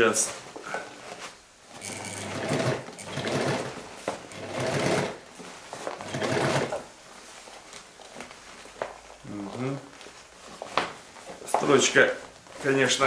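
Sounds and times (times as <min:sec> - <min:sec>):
sewing machine stitching: 0:01.8 - 0:05.2, 0:06.0 - 0:06.8.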